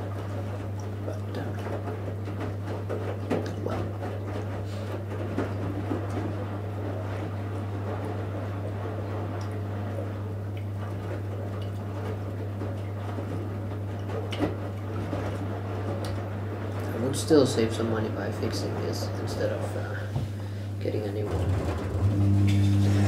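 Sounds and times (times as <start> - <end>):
washing machine drum churning water: 0.0 - 23.0
low hum: 20.2 - 23.0.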